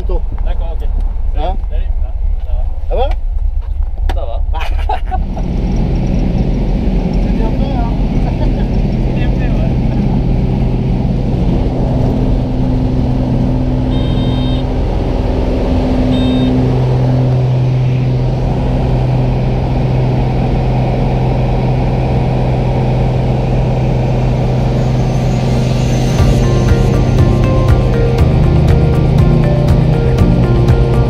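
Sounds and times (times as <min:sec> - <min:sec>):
small plane engine drone: 0:04.8 - 0:31.0
short high beeps: 0:13.9 - 0:14.6, 0:16.1 - 0:16.6.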